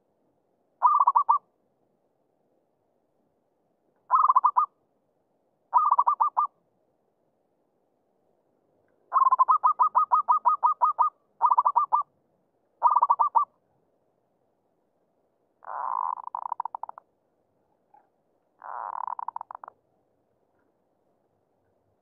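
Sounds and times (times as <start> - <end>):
dove cooing: 0.8 - 1.4, 4.1 - 4.7, 5.7 - 6.5, 9.1 - 12.0, 12.8 - 13.5, 15.6 - 17.0, 18.6 - 19.7.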